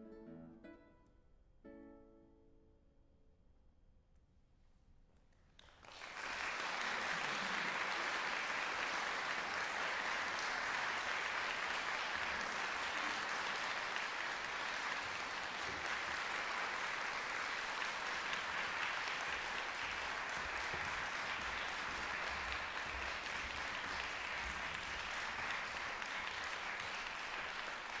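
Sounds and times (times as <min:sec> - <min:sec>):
audience applauding: 0:05.6 - 0:28.0.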